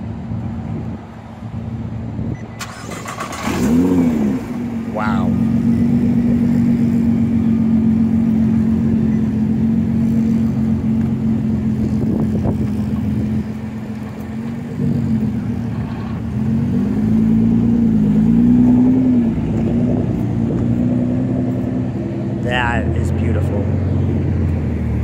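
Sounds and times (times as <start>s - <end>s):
car engine idling and revving: 0.0s - 25.0s.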